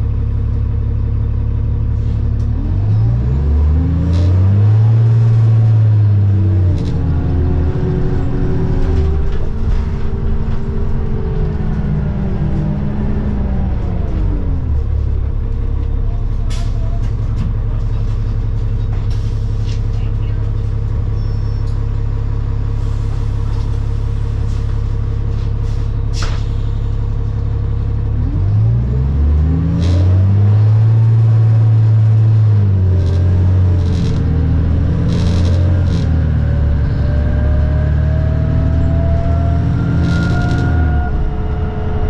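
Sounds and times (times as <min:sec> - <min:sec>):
bus engine humming and revving: 0:00.0 - 0:42.0
rising whine: 0:28.2 - 0:42.0.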